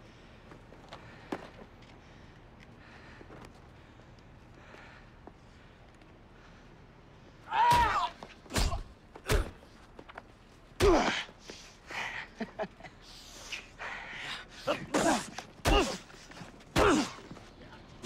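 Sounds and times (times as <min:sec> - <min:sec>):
punch impacts: 0:07.6 - 0:09.7, 0:10.8 - 0:11.2, 0:15.0 - 0:16.1, 0:16.7 - 0:17.2
grunts and gasps: 0:13.2 - 0:17.4.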